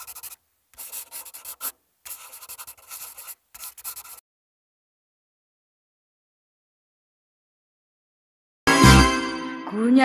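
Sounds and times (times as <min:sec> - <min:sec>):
scratchy scribbling: 0:00.0 - 0:04.2.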